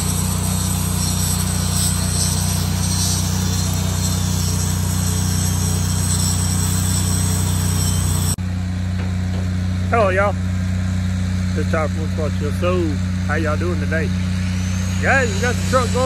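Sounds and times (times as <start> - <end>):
welding arc crackling hiss: 0.0 - 8.4
engine droning: 0.0 - 16.0.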